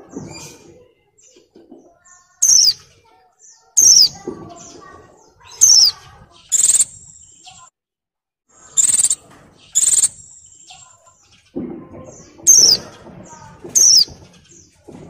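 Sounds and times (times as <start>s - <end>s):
bird buzzy high calls: 2.4s - 2.8s, 3.8s - 4.2s, 5.5s - 7.6s, 8.7s - 11.0s
bird calling sharp sliding notes: 5.6s - 7.0s, 8.8s - 9.2s, 9.8s - 10.4s.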